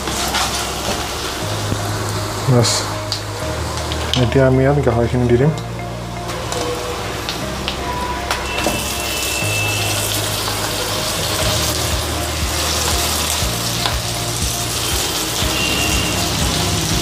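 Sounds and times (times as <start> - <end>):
meat sizzling in hot oil: 0.0 - 4.3, 8.4 - 17.0.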